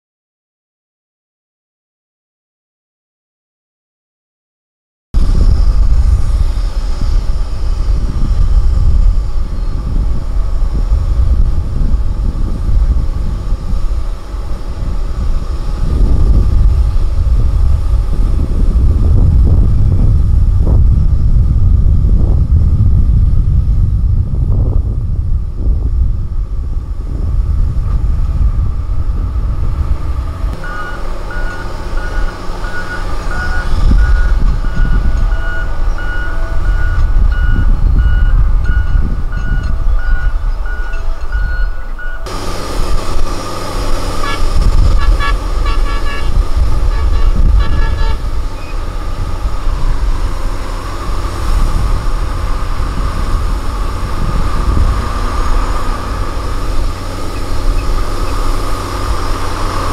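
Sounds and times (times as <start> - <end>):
diesel engine rumbling under load: 5.2 - 59.9
reversing alarm beeping: 30.6 - 43.5.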